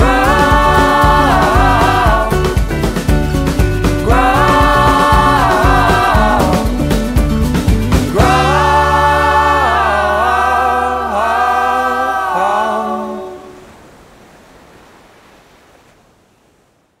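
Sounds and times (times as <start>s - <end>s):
wordless choir chord: 0.0s - 2.8s, 4.0s - 6.8s, 8.1s - 13.6s.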